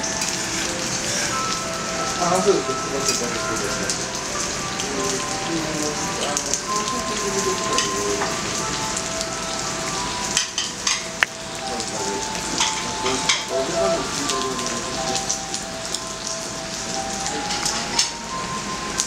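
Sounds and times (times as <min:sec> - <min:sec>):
beef sizzling on griddle: 0:00.1 - 0:01.7.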